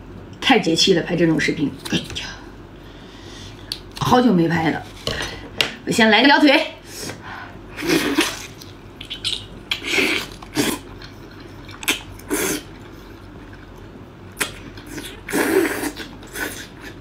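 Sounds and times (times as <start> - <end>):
wet slurping and chewing: 7.8 - 17.0.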